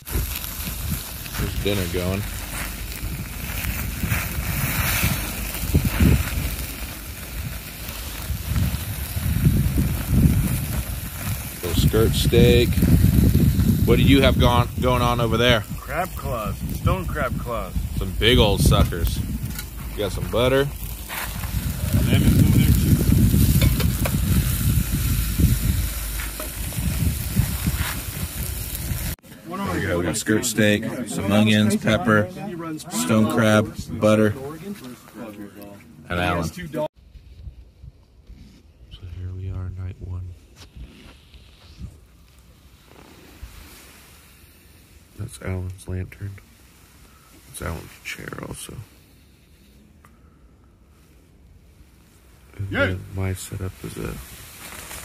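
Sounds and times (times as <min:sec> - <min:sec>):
low rumble: 0:00.0 - 0:29.2
wind buffeting microphone: 0:00.0 - 0:29.2
steak sizzling: 0:00.0 - 0:32.2.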